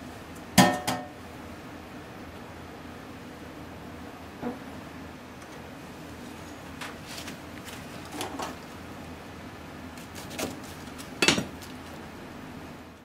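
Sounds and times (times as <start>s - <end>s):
dishes and utensils clinking: 11.2s - 11.6s.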